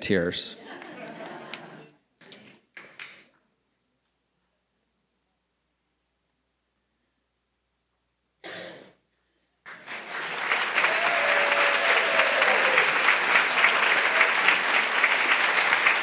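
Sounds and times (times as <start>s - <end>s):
audience applauding: 9.7s - 16.0s.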